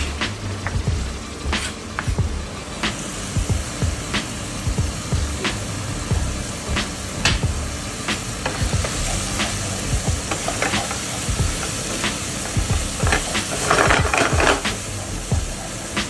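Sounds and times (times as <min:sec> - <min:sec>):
meat sizzling in hot oil: 0:06.0 - 0:14.6.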